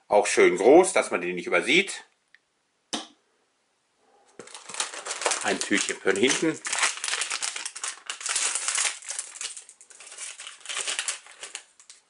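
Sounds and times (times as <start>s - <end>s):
plastic wrapper crackling: 4.4s - 12.0s.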